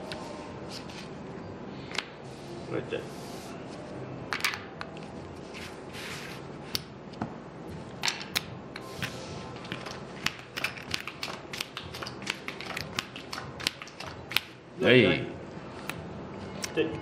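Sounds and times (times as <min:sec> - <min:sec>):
playing cards swishing on felt: 0:00.1 - 0:01.2, 0:05.4 - 0:06.5, 0:08.8 - 0:14.0
casino chips clacking: 0:09.7 - 0:14.5.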